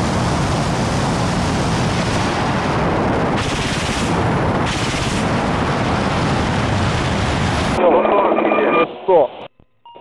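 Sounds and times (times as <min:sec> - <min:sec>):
helicopter cannon firing: 0:00.0 - 0:07.8
wind noise: 0:00.0 - 0:07.8
helicopter rotor noise: 0:00.0 - 0:08.3.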